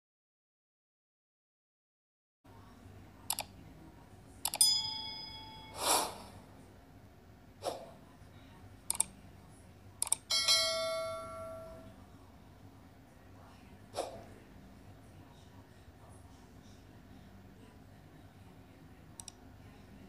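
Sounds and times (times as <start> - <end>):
mouse clicks: 3.3 - 3.5, 8.9 - 9.1, 10.0 - 10.2, 19.2 - 19.4
notification bell chime: 4.6 - 5.8, 10.3 - 11.8
short chime: 4.6 - 5.9
swooshes: 5.7 - 6.4, 14.0 - 14.3.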